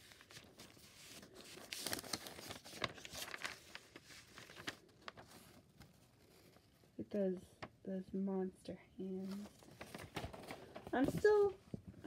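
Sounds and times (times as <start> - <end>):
paper pages rustling: 0.0 - 6.9, 9.2 - 11.8.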